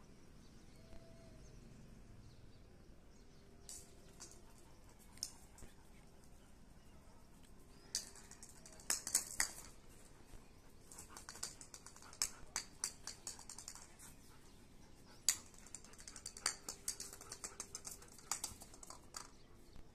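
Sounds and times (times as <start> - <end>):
dog claws clicking on concrete: 3.6 - 5.8, 7.4 - 10.0, 10.8 - 14.2, 15.0 - 19.5.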